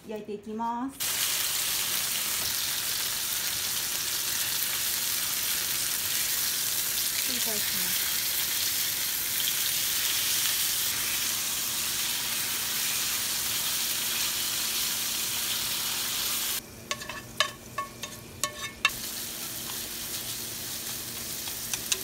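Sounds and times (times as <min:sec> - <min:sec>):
meat sizzling in a frying pan: 0:01.0 - 0:22.0
vegetables stir-frying: 0:01.0 - 0:22.0
chopsticks clicking against pan: 0:16.9 - 0:18.9, 0:21.5 - 0:22.0.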